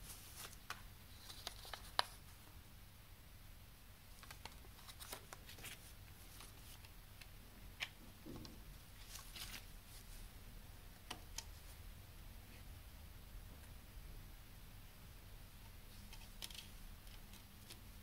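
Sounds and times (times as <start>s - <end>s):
paper strip rustling: 0.0s - 2.2s.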